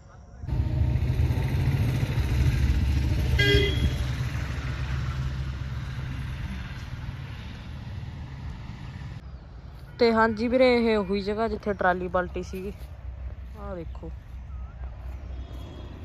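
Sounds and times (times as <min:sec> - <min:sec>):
low outdoor rumble: 0:00.1 - 0:09.6
short horn toot: 0:03.3 - 0:04.1.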